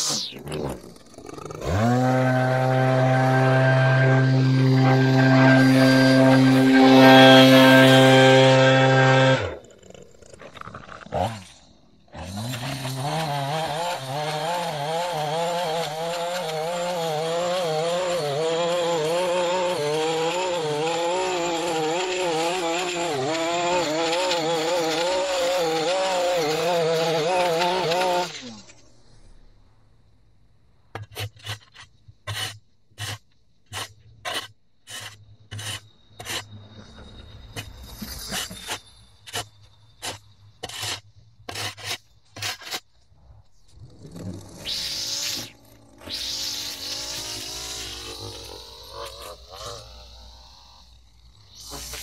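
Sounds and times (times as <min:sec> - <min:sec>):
small gas engine revving: 0:00.0 - 0:10.4, 0:11.1 - 0:28.7, 0:43.8 - 0:52.0
shovel scraping on concrete: 0:01.7 - 0:09.6, 0:31.0 - 0:36.5, 0:37.6 - 0:42.9.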